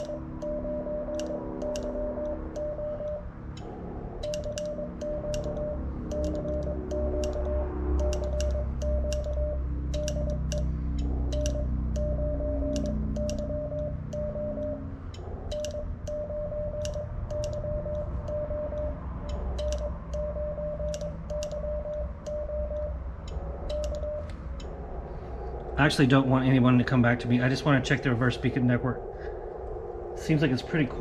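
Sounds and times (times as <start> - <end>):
morse key clicks: 0.0 - 16.2, 16.8 - 24.8
morse code beeps: 0.0 - 24.8.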